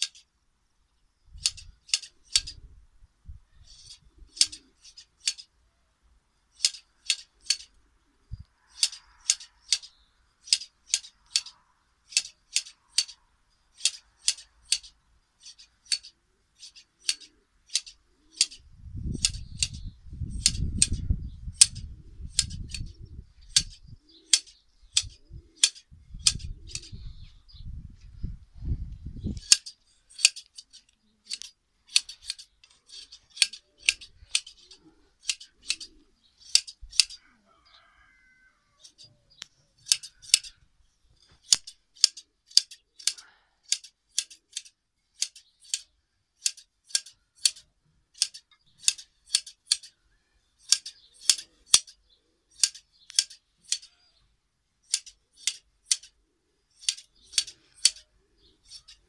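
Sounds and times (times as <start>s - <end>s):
scissors snipping fleece: 13.8s - 18.6s, 23.5s - 26.9s, 29.4s - 37.2s, 39.8s - 40.6s, 41.3s - 47.6s, 48.2s - 50.0s, 50.6s - 52.0s, 52.6s - 53.9s, 54.9s - 56.2s, 56.8s - 58.1s.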